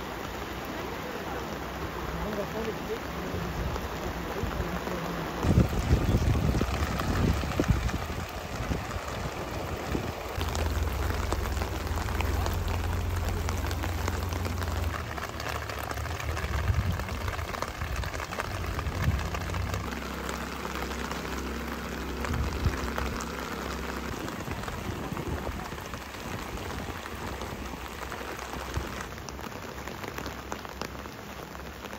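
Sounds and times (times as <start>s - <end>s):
floodwater rushing: 0.0s - 31.9s
low rumble: 5.2s - 29.1s.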